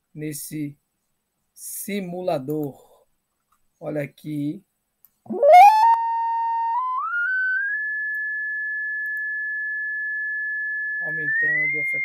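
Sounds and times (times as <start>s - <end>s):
sine-wave test tone: 5.3s - 12.0s.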